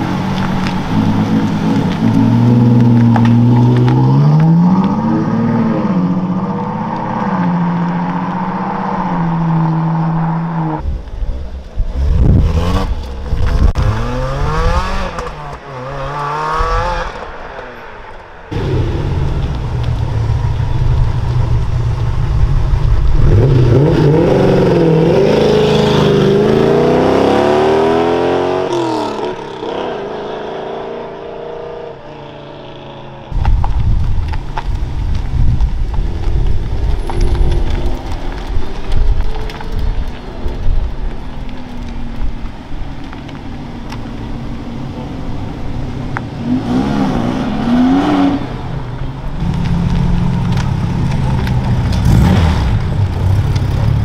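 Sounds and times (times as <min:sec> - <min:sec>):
car engine revving while pulling away: 0:13.8 - 0:17.1, 0:23.2 - 0:31.9, 0:46.4 - 0:48.7, 0:49.4 - 0:54.0.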